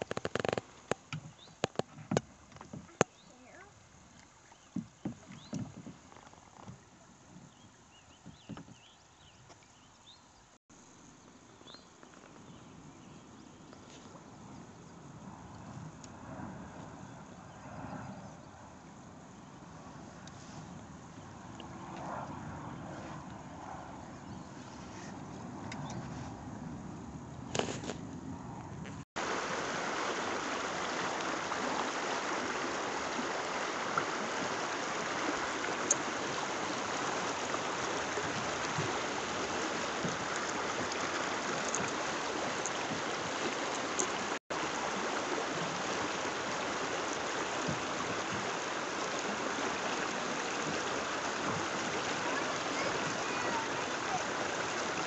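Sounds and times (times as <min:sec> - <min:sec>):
river water rushing: 0:29.2 - 0:55.0.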